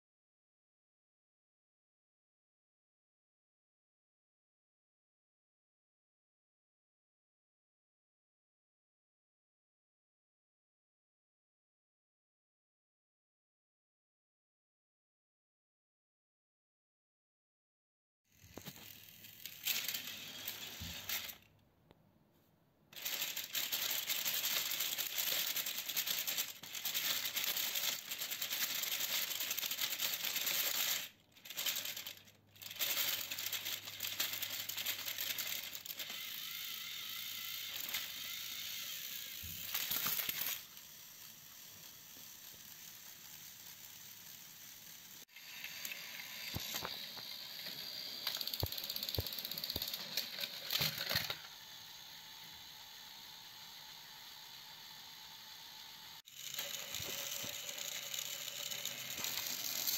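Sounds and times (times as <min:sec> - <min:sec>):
small motors whirring: 0:18.3 - 0:21.5, 0:22.9 - 0:59.9
plastic wheels rattling over track: 0:18.5 - 0:21.5, 0:22.9 - 0:51.9, 0:56.2 - 0:59.9.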